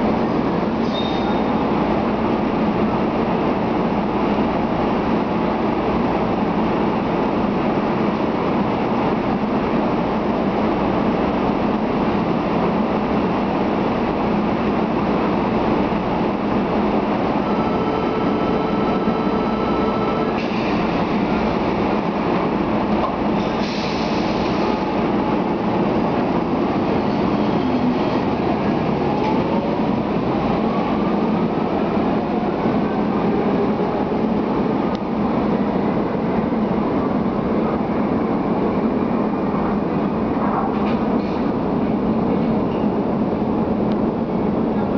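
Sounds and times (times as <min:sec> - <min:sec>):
train rail noise: 0:00.0 - 0:44.9
steady tone: 0:16.6 - 0:20.4.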